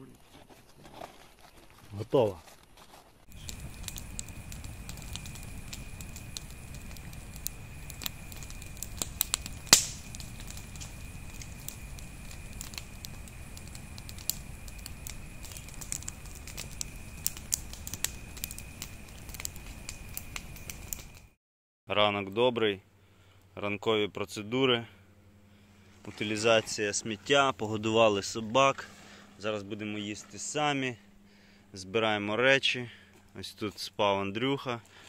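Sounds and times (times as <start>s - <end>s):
wood crackling and popping: 2.5s - 21.4s
low steady fire rumble: 3.2s - 21.4s, 22.3s - 35.0s.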